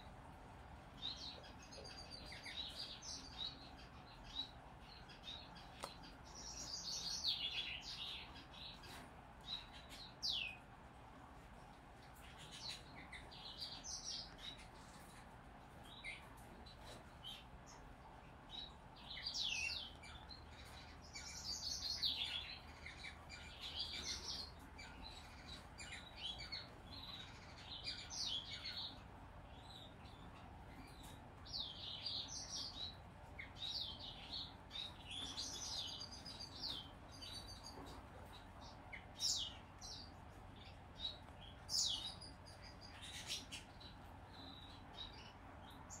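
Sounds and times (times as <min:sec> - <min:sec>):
finch chick chirping: 0:18.5 - 0:46.0.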